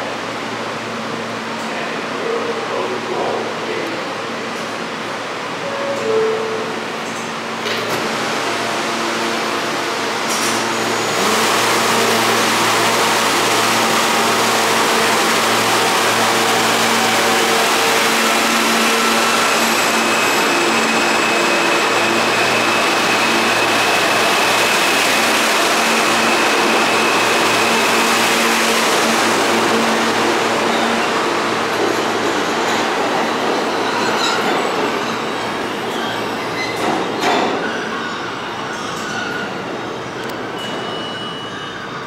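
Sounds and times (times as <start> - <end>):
subway train wheels and motors: 0.0 - 42.0.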